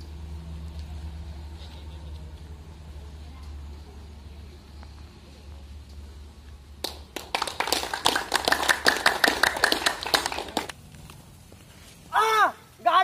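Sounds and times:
people clapping: 6.8s - 10.8s.

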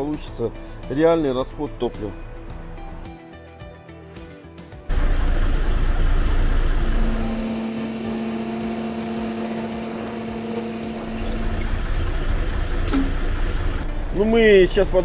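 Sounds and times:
airboat engine and propeller: 4.9s - 13.8s.

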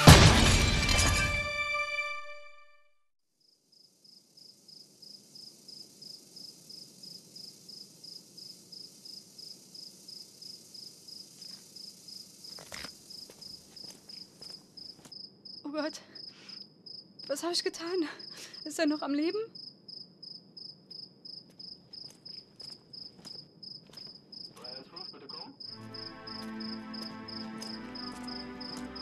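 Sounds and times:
cricket chirping: 3.4s - 29.0s
faint background hiss: 3.7s - 14.8s.

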